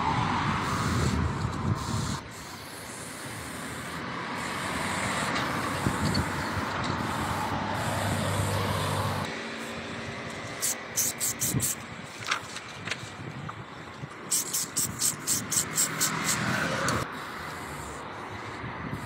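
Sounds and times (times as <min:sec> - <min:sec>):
spray paint can hissing: 0:00.6 - 0:09.8, 0:10.4 - 0:11.8, 0:14.2 - 0:18.0.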